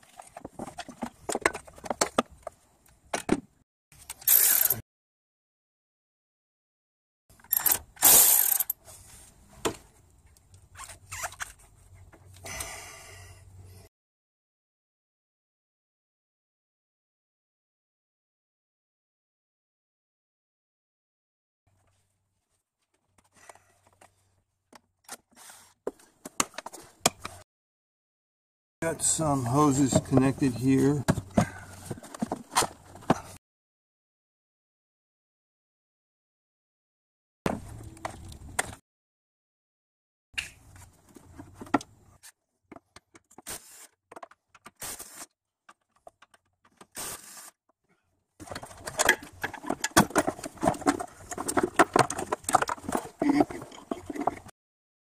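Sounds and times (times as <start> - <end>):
cordless driver bursts: 7.5 - 8.7
plastic knocking and scraping: 48.4 - 54.5.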